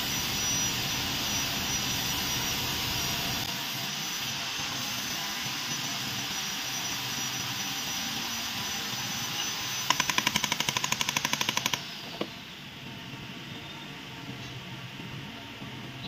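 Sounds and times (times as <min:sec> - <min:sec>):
high whine: 0:00.0 - 0:03.6
steady hiss: 0:00.0 - 0:04.6
rapid mechanical clicks: 0:09.9 - 0:11.9.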